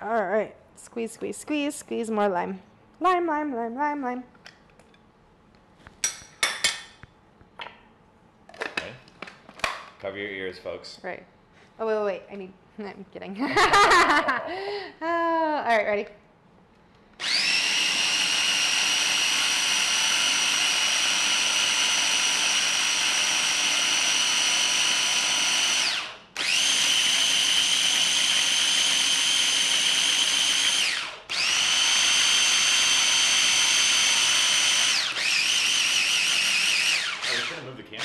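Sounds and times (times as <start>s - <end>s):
electric blender whining: 17.2s - 38.0s.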